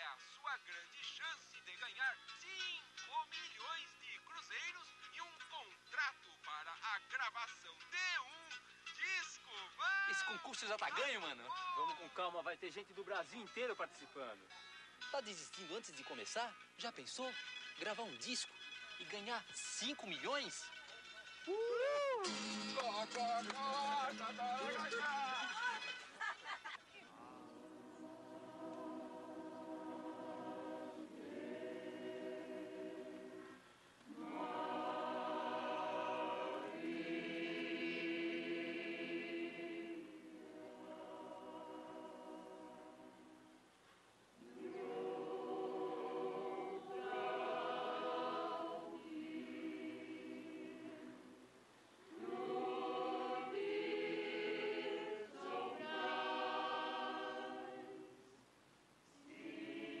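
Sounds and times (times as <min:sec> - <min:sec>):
choir singing held chords: 0:27.1 - 0:43.7, 0:44.4 - 0:58.4, 0:59.2 - 1:00.0.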